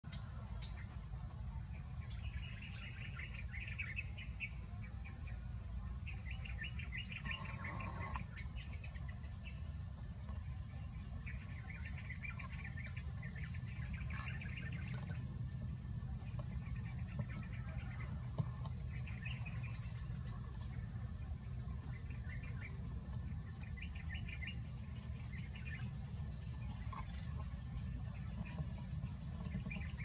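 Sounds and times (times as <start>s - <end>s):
crickets droning: 0.0s - 30.0s
rapid bird chirping: 6.0s - 9.8s.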